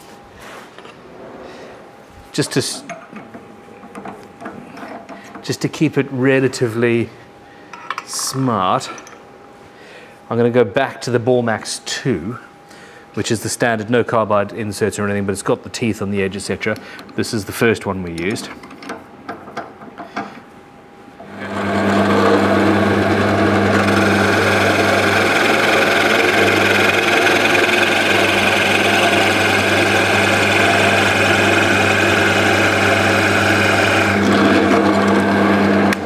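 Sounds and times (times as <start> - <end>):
drill motor humming: 21.2 - 36.0
drill bit boring into wood: 21.3 - 36.0.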